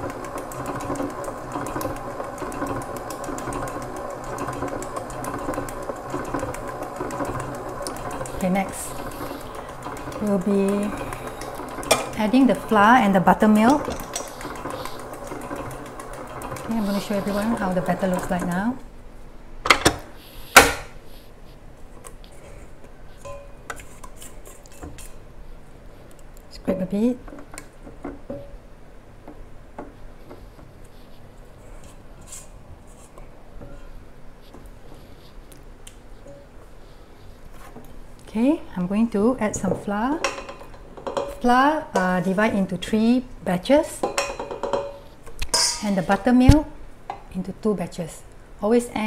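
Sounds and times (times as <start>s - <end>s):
stand mixer motor hum: 0.0s - 18.8s
metal bowl ringing clink: 44.1s - 46.0s.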